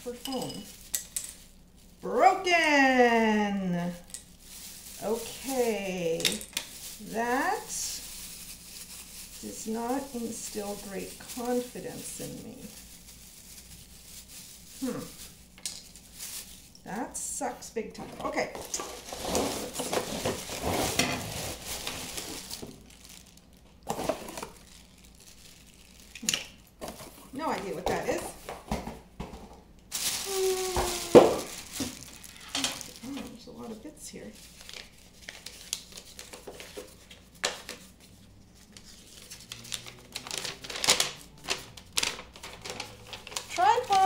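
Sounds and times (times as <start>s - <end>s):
plastic bag crinkling: 0.0s - 17.2s, 18.2s - 28.7s, 29.9s - 44.0s
cardboard scraping: 18.2s - 22.5s.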